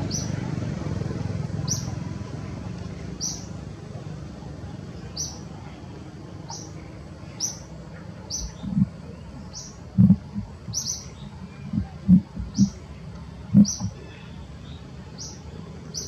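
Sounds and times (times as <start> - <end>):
outdoor background noise: 0.0 - 16.0
bird chirping: 1.6 - 1.9, 3.2 - 3.5, 6.5 - 12.8, 13.4 - 16.0
dull low thumps: 8.4 - 12.8, 13.4 - 14.0.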